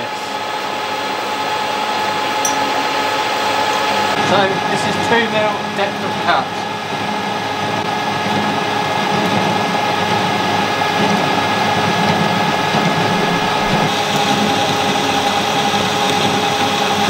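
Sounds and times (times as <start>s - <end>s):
high machine tone: 12.2s - 14.6s.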